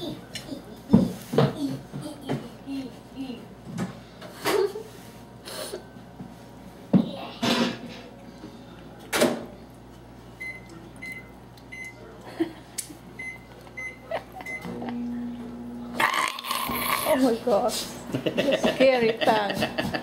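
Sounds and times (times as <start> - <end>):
microwave oven humming: 0.0 - 20.0
microwave keypad beeps: 10.4 - 12.0, 13.2 - 14.7.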